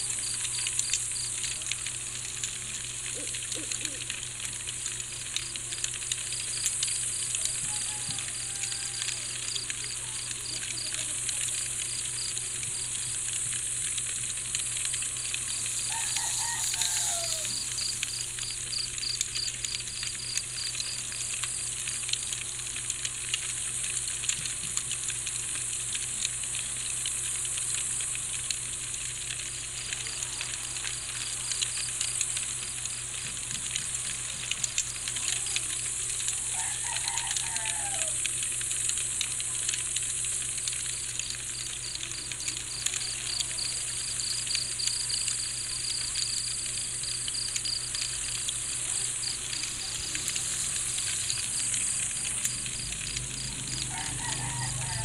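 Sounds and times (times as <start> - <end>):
crickets chirping: 0.0 - 2.4, 6.2 - 22.8, 29.0 - 55.0
high-pitched insect hiss: 6.3 - 22.0, 29.7 - 55.0.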